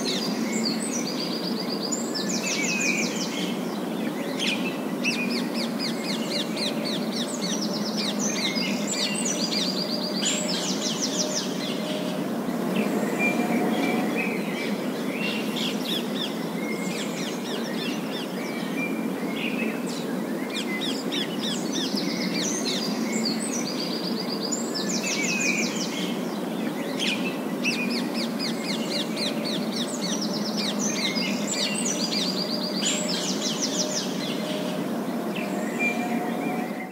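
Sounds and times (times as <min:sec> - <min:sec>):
street traffic rumble: 0:10.3 - 0:16.5, 0:32.5 - 0:36.9.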